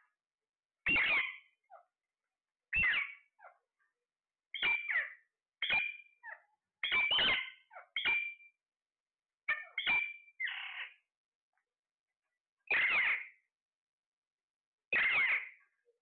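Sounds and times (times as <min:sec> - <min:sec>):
parakeets squawking: 0:00.9 - 0:01.3, 0:12.7 - 0:13.2, 0:15.0 - 0:15.5.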